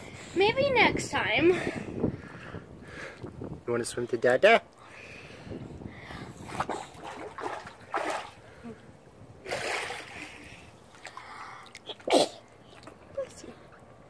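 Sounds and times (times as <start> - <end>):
pool water splashing: 6.5 - 13.0.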